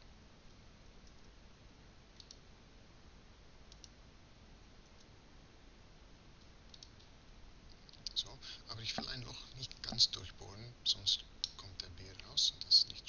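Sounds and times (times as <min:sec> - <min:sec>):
low microphone hiss: 0:00.0 - 0:13.0
mouse and keyboard clicks: 0:02.2 - 0:02.4, 0:06.7 - 0:07.1.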